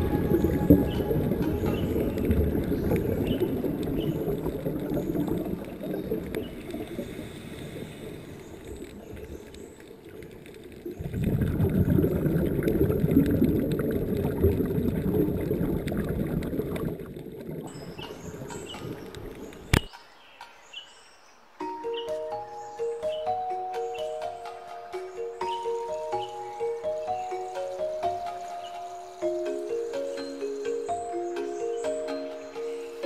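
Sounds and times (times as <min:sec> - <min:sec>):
muffled underwater rushing and gurgling: 0:00.0 - 0:19.9.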